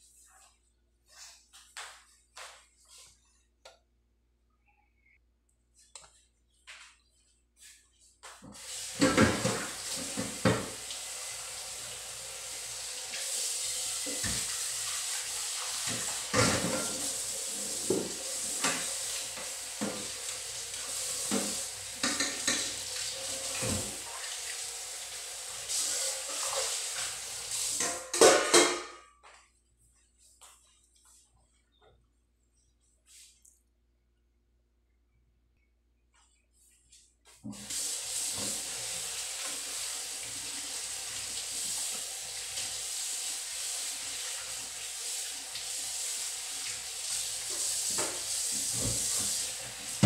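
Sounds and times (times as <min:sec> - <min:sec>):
metal pans clattering against sink: 0:09.0 - 0:10.8, 0:15.9 - 0:17.2, 0:21.2 - 0:22.9, 0:27.8 - 0:29.2
tap running into metal sink: 0:21.2 - 0:24.0.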